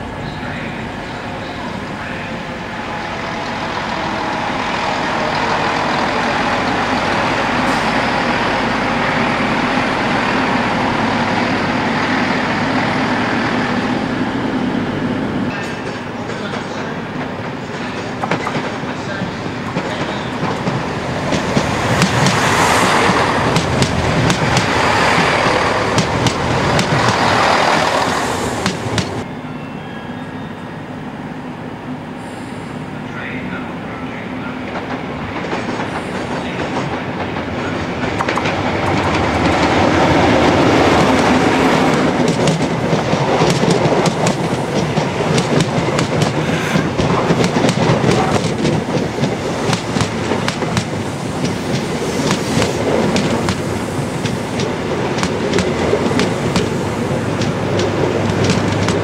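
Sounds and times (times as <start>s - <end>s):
train rumbling past: 0.0s - 59.0s
wheels clicking over rail joints: 47.0s - 59.0s.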